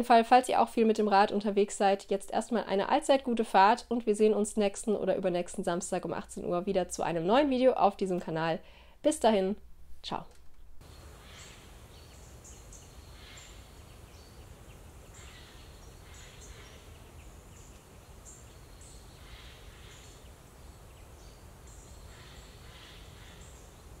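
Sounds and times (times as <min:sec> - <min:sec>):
low background noise: 0:00.0 - 0:24.0.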